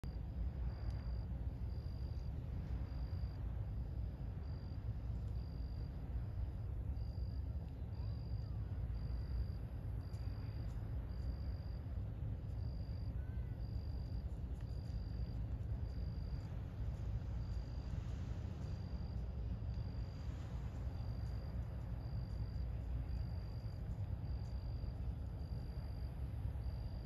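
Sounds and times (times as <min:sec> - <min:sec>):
cricket chirping: 0:00.0 - 0:27.0
low steady rumble: 0:00.0 - 0:27.0.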